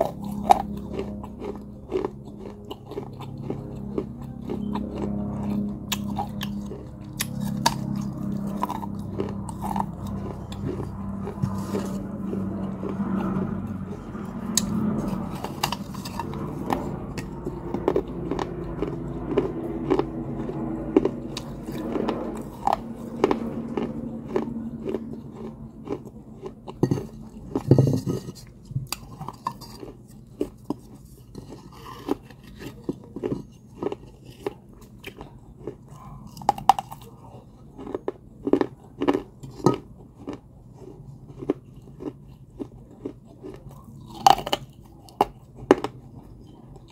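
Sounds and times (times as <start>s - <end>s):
clay pot being chewed: 0.0s - 46.9s.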